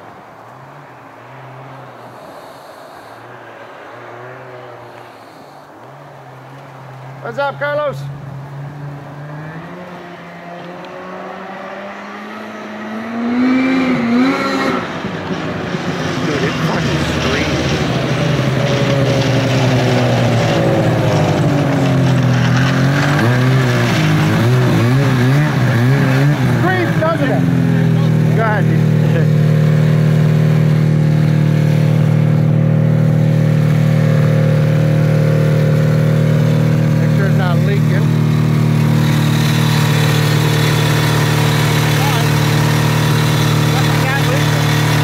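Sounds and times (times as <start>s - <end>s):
snowmobile throttle blips: 4.2s - 5.7s, 12.3s - 45.0s
snowmobile engine running: 12.8s - 45.0s.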